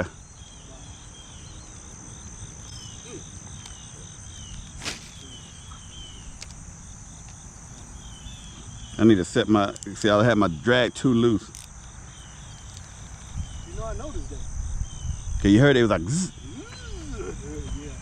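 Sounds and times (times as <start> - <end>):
crickets droning: 0.0 - 18.0
short falling chirps: 2.7 - 6.5.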